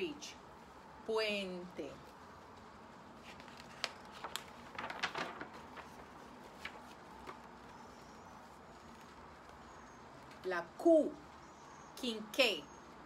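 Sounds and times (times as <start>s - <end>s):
light ticks of book: 2.0s - 10.4s
book page turning: 3.1s - 9.6s.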